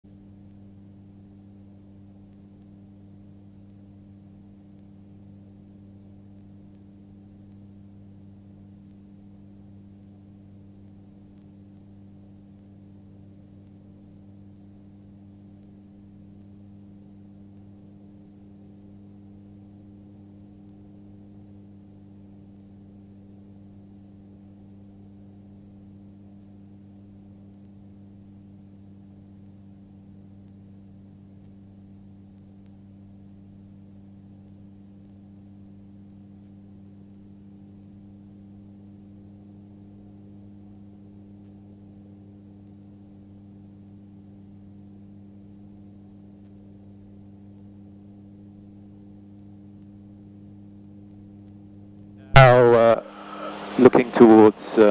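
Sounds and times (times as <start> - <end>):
muffled engine and propeller drone: 0.1 - 54.9
gyrocopter engine and propeller drone: 44.8 - 54.9.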